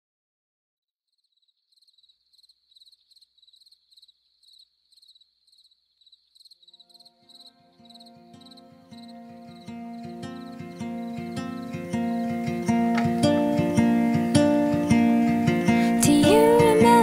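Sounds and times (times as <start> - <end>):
crickets chirping: 1.2 - 17.0
soft music with sustained notes: 7.0 - 17.0.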